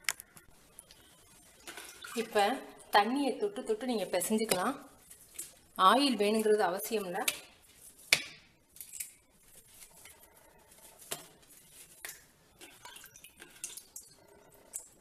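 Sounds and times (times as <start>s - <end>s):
dough rubbing on plate: 9.4s - 13.5s.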